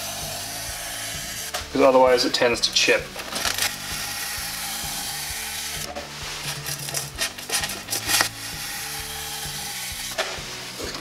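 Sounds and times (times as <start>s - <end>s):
knife blade scoring foam board: 3.2s - 11.0s.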